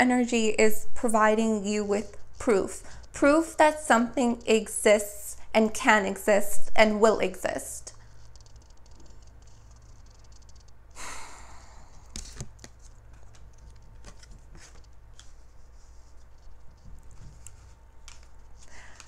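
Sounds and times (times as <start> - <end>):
low steady hum: 0.0 - 19.0
person sighing: 11.0 - 12.1.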